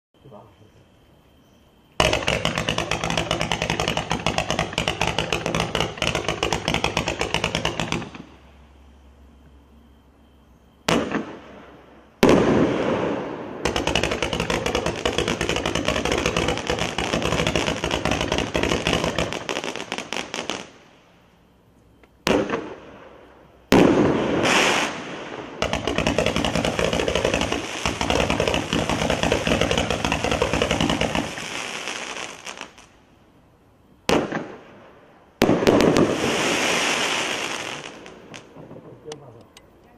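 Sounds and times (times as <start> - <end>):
fireworks cake volleys: 2.0 - 8.2, 13.7 - 20.5, 24.4 - 32.8
firework bangs: 2.0 - 8.6, 10.8 - 21.0, 22.2 - 33.0, 34.0 - 39.4.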